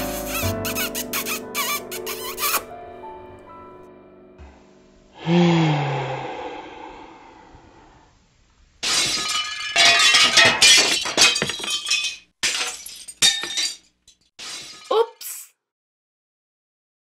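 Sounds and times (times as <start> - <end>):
glass crashing and shattering: 8.8 - 15.1.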